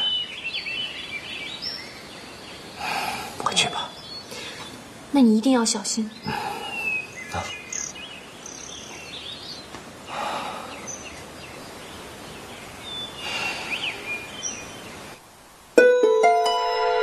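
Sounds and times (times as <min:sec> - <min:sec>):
bird chirps: 0:00.0 - 0:04.8, 0:06.3 - 0:15.1
steady background hiss: 0:00.0 - 0:17.0.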